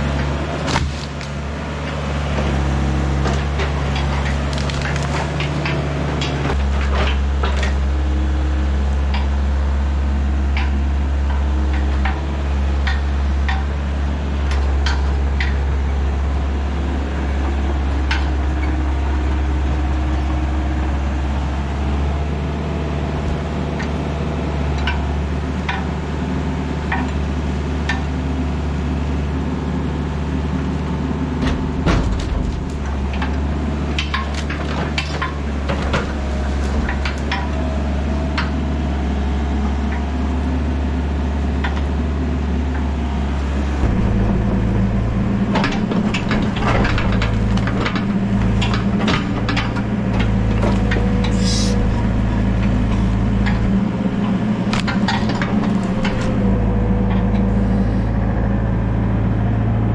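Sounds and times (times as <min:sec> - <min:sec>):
excavator diesel engine running: 0:00.0 - 0:59.9
logs knocking and clattering: 0:43.8 - 0:57.5.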